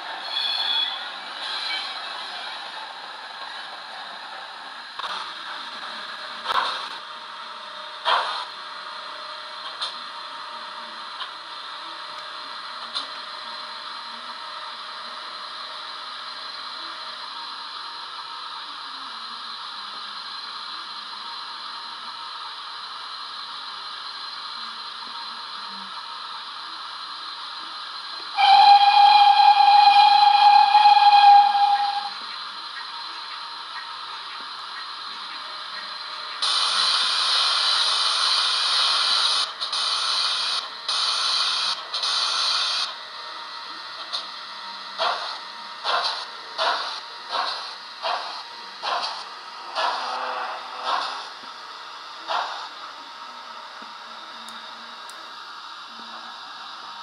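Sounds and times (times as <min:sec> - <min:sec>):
steam whistle blast: 0:28.4 - 0:32.2.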